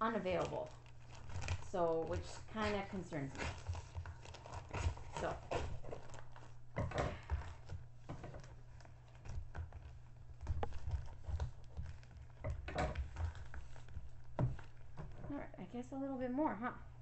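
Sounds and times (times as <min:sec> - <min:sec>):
plastic bag crinkling: 0:00.0 - 0:15.5
scissors snipping plastic: 0:00.1 - 0:06.4.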